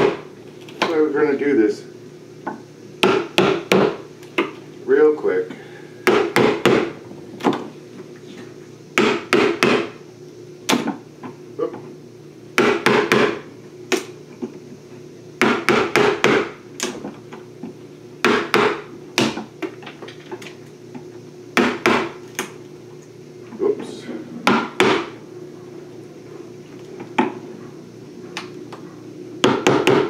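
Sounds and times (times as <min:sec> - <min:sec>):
steady low hum: 0:00.0 - 0:30.0
hammer striking wood chisel: 0:03.0 - 0:04.0, 0:06.1 - 0:06.9, 0:09.0 - 0:09.9, 0:12.6 - 0:13.4, 0:15.4 - 0:16.6, 0:18.2 - 0:19.4, 0:21.6 - 0:22.1, 0:24.4 - 0:25.1, 0:29.4 - 0:30.0.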